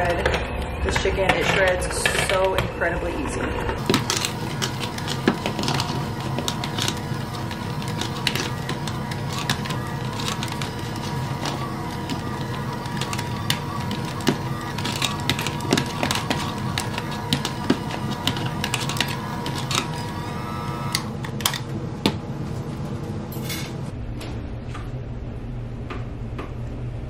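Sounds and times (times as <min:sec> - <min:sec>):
beaters clicking and knocking in bowl: 0:00.0 - 0:02.7, 0:03.8 - 0:20.2
electric hand mixer running: 0:03.8 - 0:21.2.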